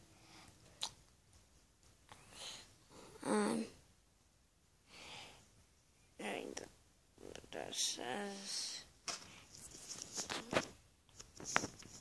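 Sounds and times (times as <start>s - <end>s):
child's wordless voice sound: 2.1s - 3.8s, 6.2s - 9.0s
child breathing: 4.8s - 5.6s
soft rubbing noises: 8.4s - 12.0s.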